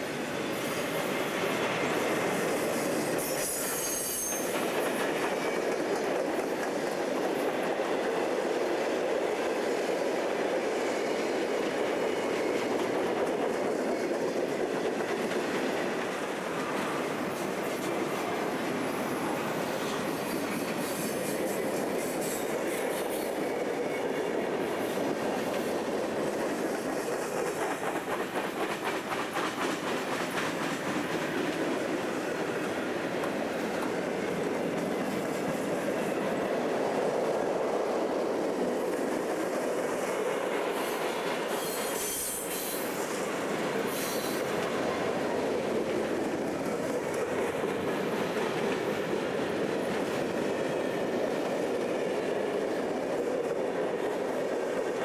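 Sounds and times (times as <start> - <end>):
train wheels rumbling on rails: 0.0 - 55.0
high-pitched wheel squeal: 3.2 - 4.6, 41.5 - 42.9.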